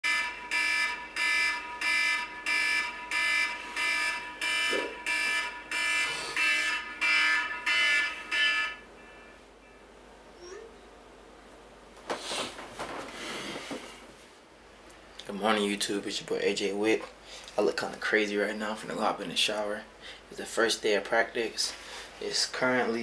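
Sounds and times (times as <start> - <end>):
alarm beeping: 0.0 - 10.7.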